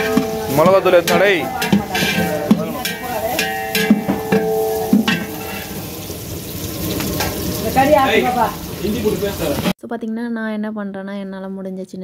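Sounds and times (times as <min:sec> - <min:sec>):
metal ladle scraping pot: 0:00.0 - 0:06.4
onions sizzling in hot oil: 0:00.0 - 0:09.8.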